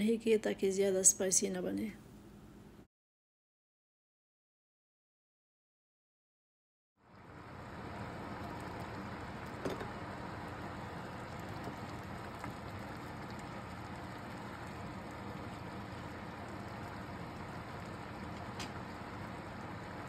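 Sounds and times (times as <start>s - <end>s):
pot bubbling and hissing: 7.0s - 20.0s.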